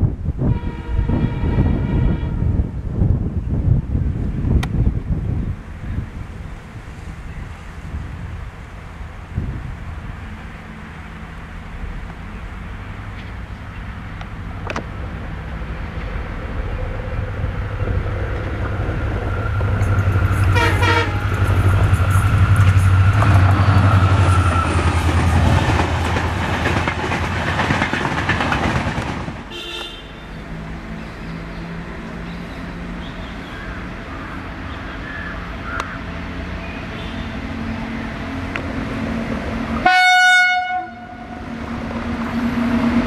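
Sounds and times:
diesel locomotive engine drone: 0.0s - 43.0s
electric locomotive hum: 0.0s - 43.0s
train wheel and rail noise: 0.0s - 43.0s
train horn blast: 0.4s - 2.7s, 20.4s - 21.6s, 29.5s - 30.4s, 39.8s - 41.5s.

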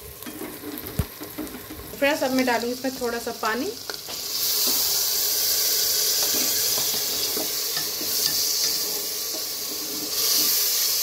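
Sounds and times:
minced meat sizzling: 0.0s - 11.0s
ladle scraping a pot: 6.2s - 10.8s.

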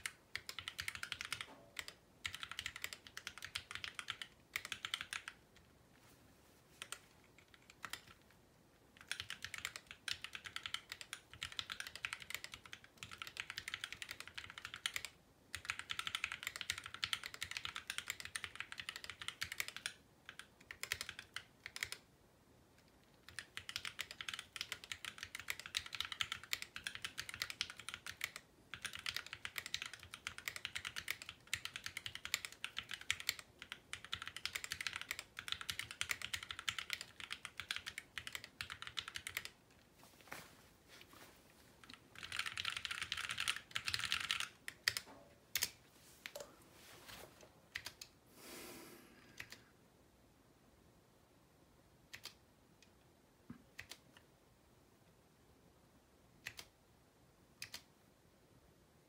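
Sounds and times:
mechanical keyboard typing: 0.0s - 5.7s, 6.8s - 8.3s, 9.0s - 22.0s, 22.8s - 39.6s, 41.8s - 46.4s, 47.7s - 48.1s, 49.4s - 49.6s, 52.1s - 52.4s, 53.7s - 54.2s, 56.4s - 56.7s, 57.6s - 57.9s.

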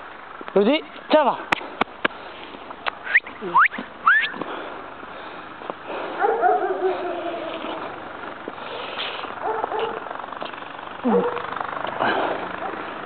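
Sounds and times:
dog whining: 6.2s - 7.9s, 11.0s - 11.4s
dog yelping: 6.2s - 7.9s, 9.4s - 10.0s, 11.1s - 11.5s.

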